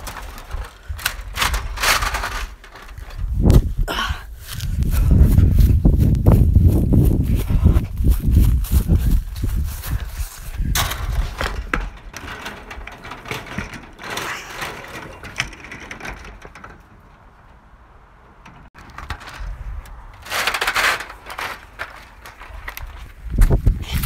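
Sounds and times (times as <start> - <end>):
knocks and scrapes: 0.0 - 3.9, 4.5 - 24.0
footsteps: 0.0 - 13.0.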